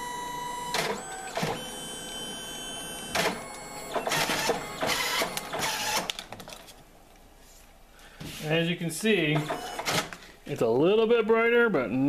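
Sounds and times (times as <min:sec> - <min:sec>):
printer motor whine: 0:00.0 - 0:06.3, 0:09.4 - 0:10.1
printer whirring and clattering: 0:00.0 - 0:06.6, 0:09.2 - 0:10.1.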